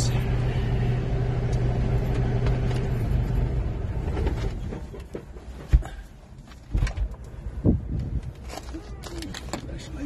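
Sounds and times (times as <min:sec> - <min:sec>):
diesel truck engine idling: 0:00.0 - 0:05.2.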